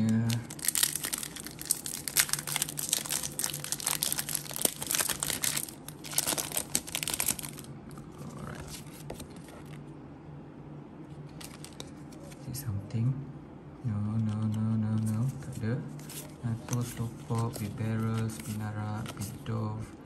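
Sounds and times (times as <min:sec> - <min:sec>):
foil wrapper crinkling and tearing: 0:00.0 - 0:07.7.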